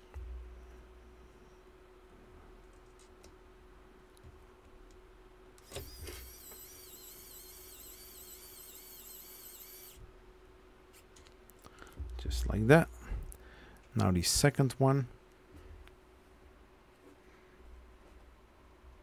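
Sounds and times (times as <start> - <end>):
electric screwdriver motor whine: 5.6 - 10.0.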